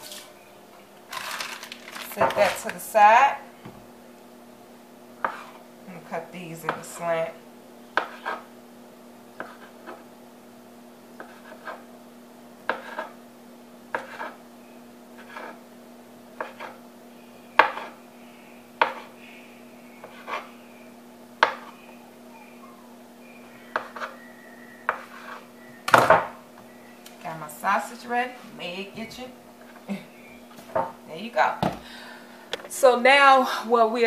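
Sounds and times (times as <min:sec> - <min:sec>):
knife slicing on wooden board: 0:13.9 - 0:14.4.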